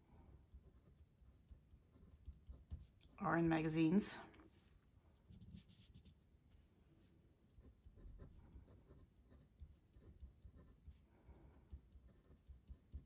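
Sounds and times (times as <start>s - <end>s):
felt-tip pen scratching on paper: 7.5s - 13.0s.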